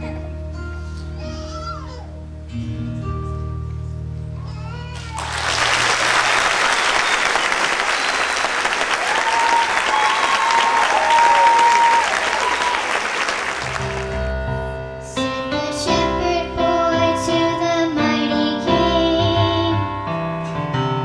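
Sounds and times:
high cheers: 0:04.9 - 0:14.2
audience applauding: 0:05.0 - 0:14.4.

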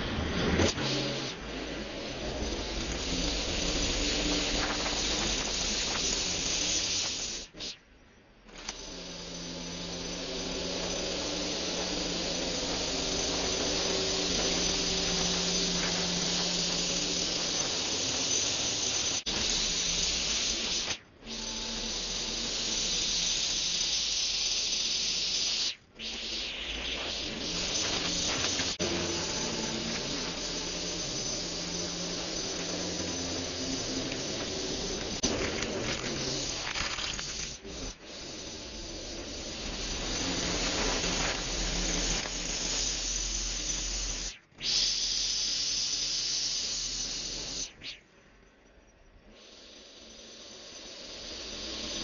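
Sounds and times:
string trimmer cutting grass: 0:27.3 - 0:43.0.

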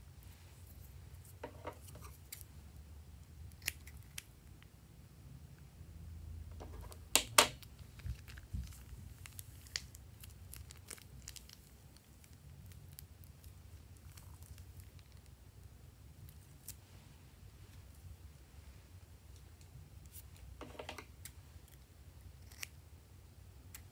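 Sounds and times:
plastic piping bag crinkling: 0:07.6 - 0:15.4.

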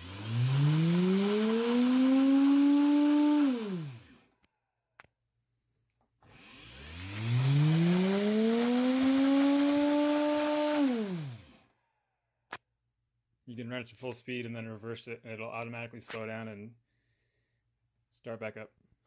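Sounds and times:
electric motor whining: 0:00.0 - 0:04.2, 0:06.2 - 0:11.6.

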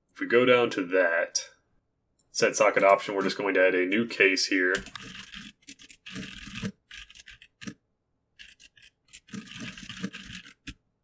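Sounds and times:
computer keyboard typing: 0:04.8 - 0:07.8, 0:08.4 - 0:10.8.

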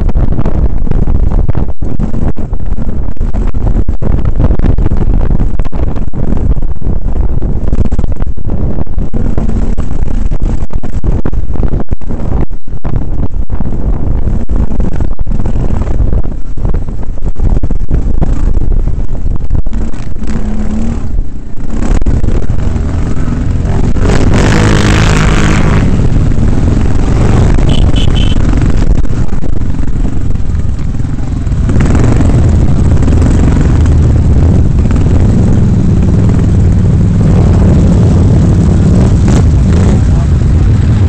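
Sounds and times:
wind buffeting microphone: 0:00.0 - 0:41.0
quad bike engine revving: 0:19.7 - 0:41.0.

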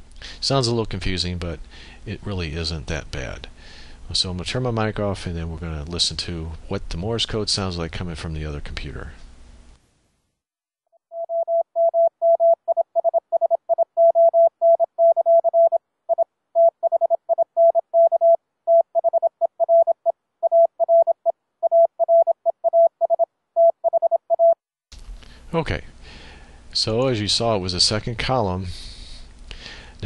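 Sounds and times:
morse code tone: 0:11.1 - 0:24.6.

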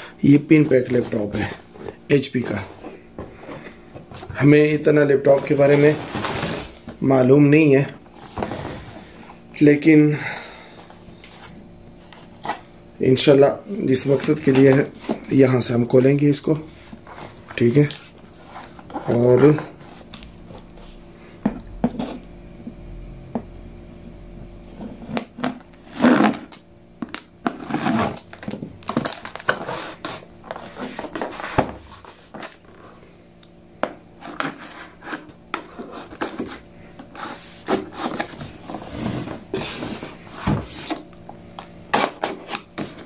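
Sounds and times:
faint steady hum: 0:00.0 - 0:43.0
cardboard box scraping and rustling: 0:05.3 - 0:07.0, 0:34.2 - 0:41.1.

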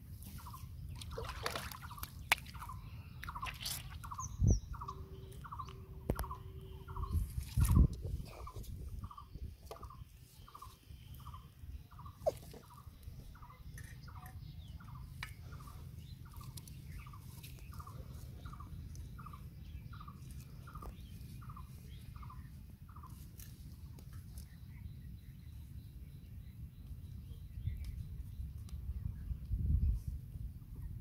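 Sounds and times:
bird calling: 0:00.3 - 0:23.2
steady low rumble: 0:04.0 - 0:31.0.

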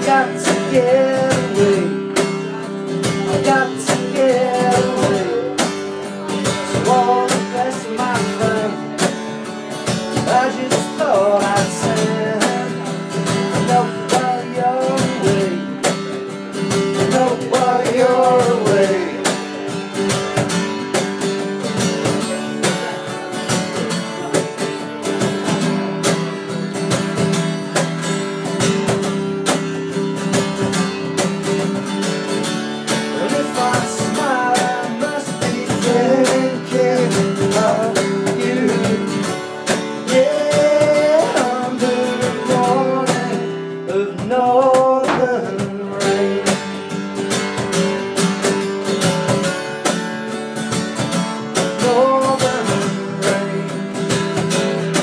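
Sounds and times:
man singing: 0:00.0 - 0:16.1, 0:16.7 - 0:19.8, 0:33.0 - 0:46.8, 0:51.6 - 0:55.0
acoustic guitar strumming: 0:00.0 - 0:55.0.

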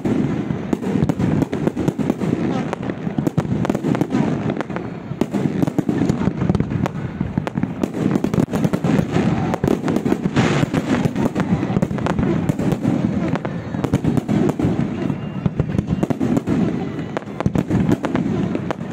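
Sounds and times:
fireworks bursting: 0:00.0 - 0:18.9.

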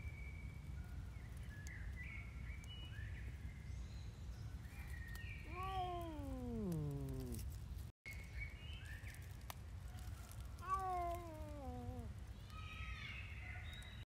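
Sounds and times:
birds chirping: 0:01.5 - 0:07.8
cat yowling: 0:05.4 - 0:07.4, 0:10.6 - 0:12.2.

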